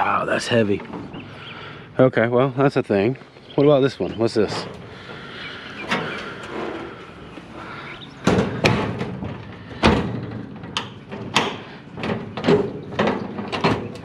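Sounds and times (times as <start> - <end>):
metal cabinet doors banging shut: 8.2 - 14.0.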